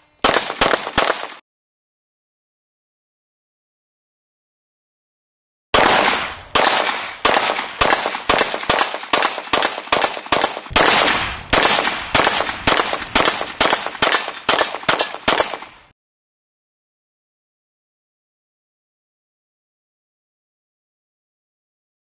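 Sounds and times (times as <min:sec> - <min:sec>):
pistol shots echoing: 0:00.2 - 0:01.4, 0:05.8 - 0:15.9.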